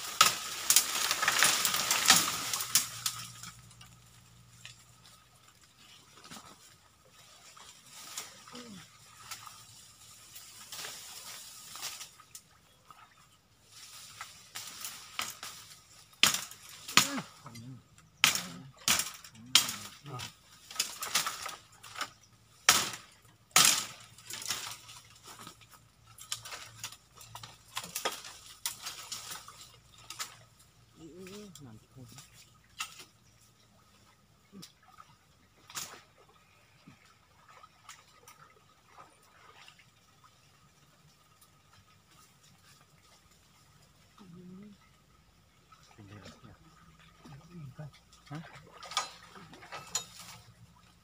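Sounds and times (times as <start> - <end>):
dry leaves crackling underfoot: 0.0 - 12.6, 13.6 - 34.2, 40.6 - 45.6.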